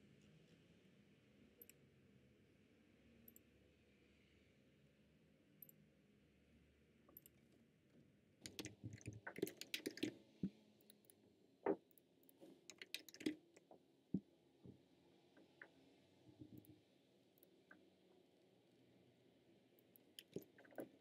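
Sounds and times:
computer keyboard typing: 8.5s - 10.1s, 12.7s - 13.4s, 20.2s - 20.9s.

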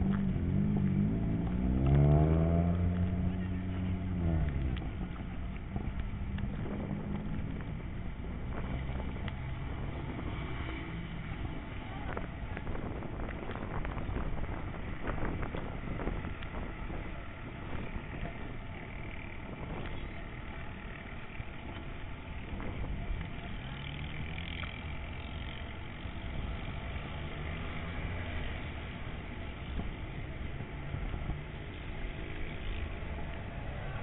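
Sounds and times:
wind on microphone: 0.0s - 20.5s, 21.7s - 23.6s
car engine humming: 0.0s - 34.0s.

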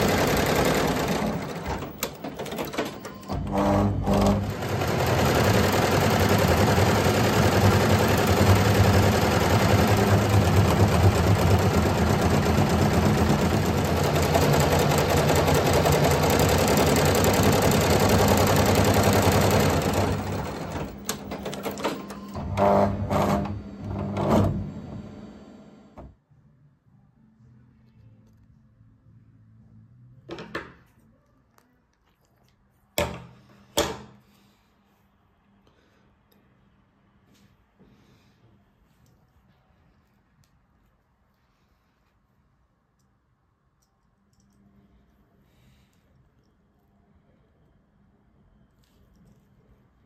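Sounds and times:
embroidery machine stitching: 0.0s - 25.6s.

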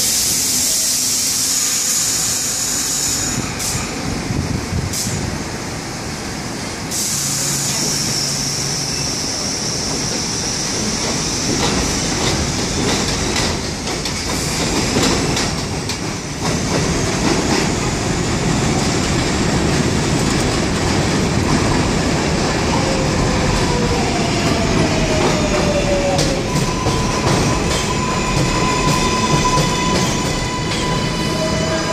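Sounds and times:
train high whine: 0.0s - 31.9s
train wheels clacking over rail joints: 10.8s - 17.8s.

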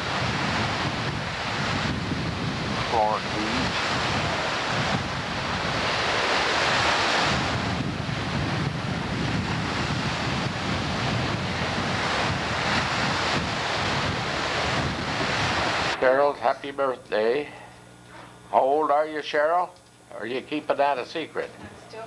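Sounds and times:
wind buffeting microphone: 0.0s - 16.0s
surf breaking on beach: 0.0s - 16.6s.

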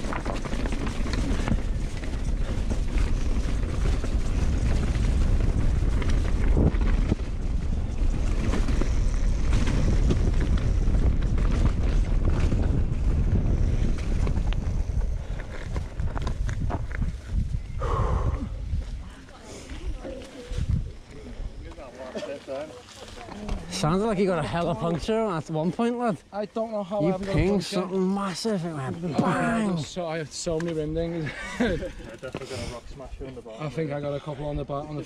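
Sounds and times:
bike rattling: 0.0s - 17.8s, 19.9s - 35.0s
wind rushing over microphone: 0.0s - 19.2s, 19.8s - 21.7s.

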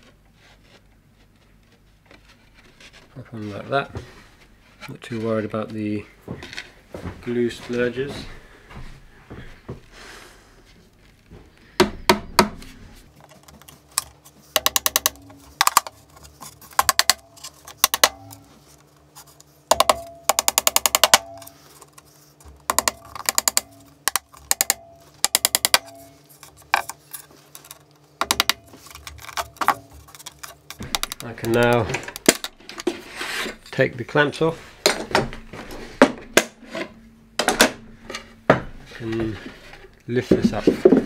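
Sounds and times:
hammer tapping nails: 14.5s - 15.9s, 16.7s - 18.4s, 19.7s - 21.6s, 22.7s - 26.9s, 27.6s - 32.5s.

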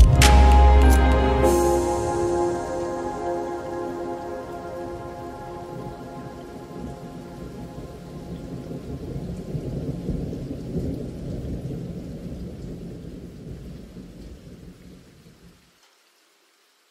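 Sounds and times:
held music chord: 0.0s - 9.0s
steady rain: 0.0s - 16.9s
rolling thunder: 1.4s - 14.7s.

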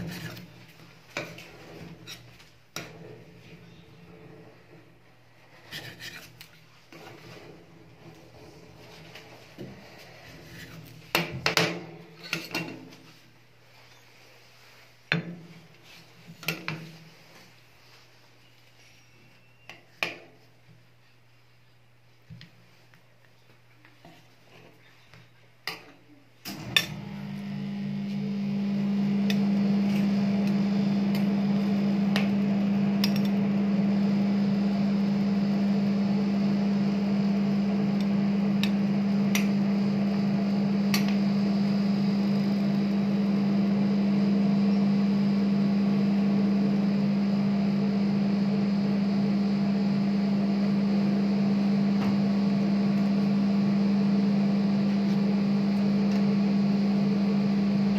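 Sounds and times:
refrigeration unit humming: 0.0s - 12.7s, 26.4s - 57.9s.

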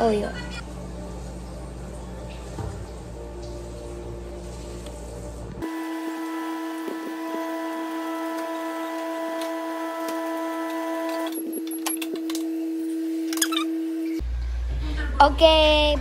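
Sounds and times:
microwave oven hum: 4.9s - 15.1s.

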